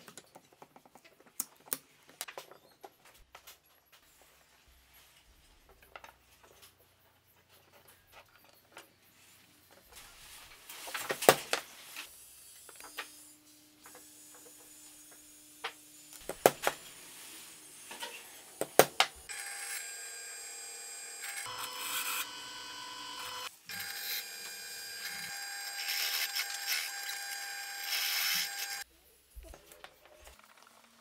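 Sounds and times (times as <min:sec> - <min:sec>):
drill press motor humming: 0:19.3 - 0:28.8.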